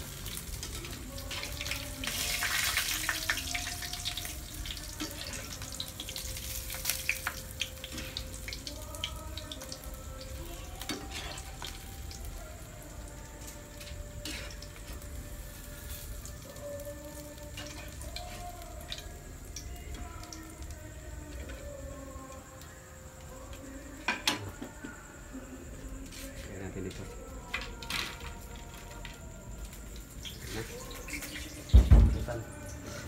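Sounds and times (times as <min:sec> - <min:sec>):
meat sizzling in hot oil: 0:00.0 - 0:20.8, 0:29.9 - 0:32.9.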